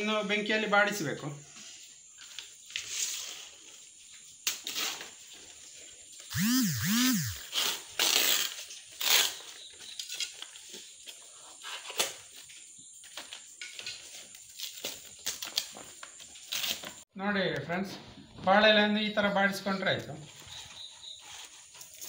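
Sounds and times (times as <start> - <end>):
short rising and falling tones: 6.3 - 7.5
leaves rustling and crinkling: 13.2 - 17.0.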